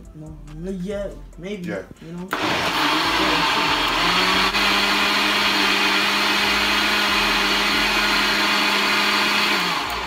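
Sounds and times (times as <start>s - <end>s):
blender running: 2.3s - 10.0s.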